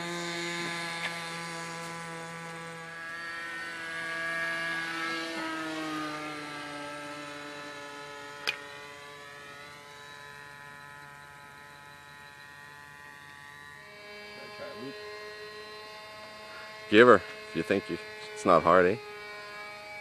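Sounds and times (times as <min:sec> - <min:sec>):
model plane engine buzzing: 0:00.0 - 0:20.0.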